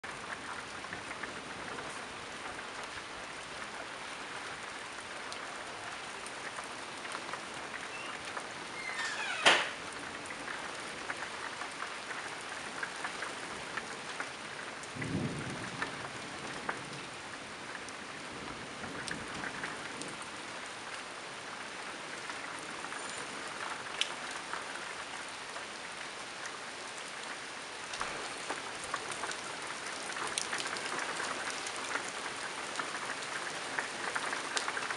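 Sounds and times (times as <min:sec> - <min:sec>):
steady rain: 0:00.0 - 0:34.9
low rumble of thunder: 0:14.6 - 0:20.5
sharp crack of thunder: 0:14.9 - 0:17.0.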